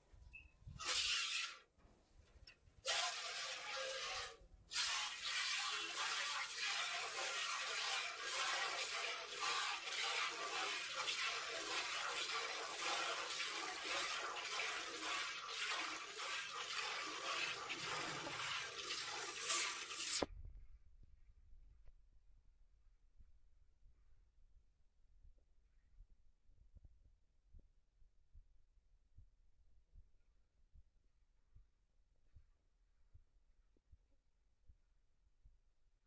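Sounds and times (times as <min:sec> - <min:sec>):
milk squirting into steel bucket: 0:00.7 - 0:01.7, 0:02.4 - 0:20.3.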